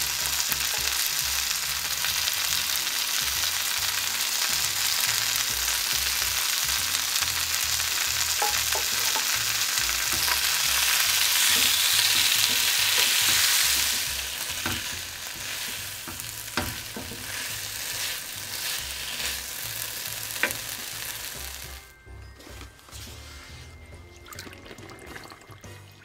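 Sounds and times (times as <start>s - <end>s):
food sizzling in oil: 0.0s - 22.5s
utensil clacking on pan: 0.6s - 1.1s, 8.2s - 19.4s, 20.3s - 20.9s.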